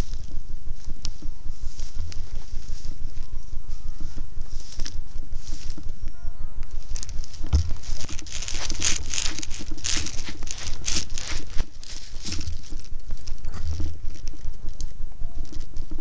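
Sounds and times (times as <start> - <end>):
dry grass swishing and crackling: 0.0 - 5.9, 6.8 - 16.0
dull footstep thuds: 6.9 - 14.2.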